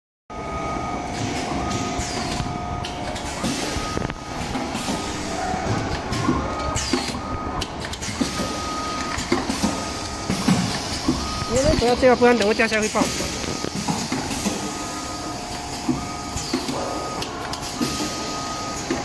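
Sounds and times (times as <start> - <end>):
high beeping tone: 3.4 - 7.6, 8.3 - 19.0.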